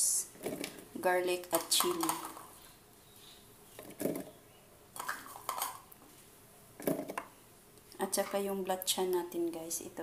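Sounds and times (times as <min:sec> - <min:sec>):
dishes and utensils clattering: 0:05.0 - 0:05.9.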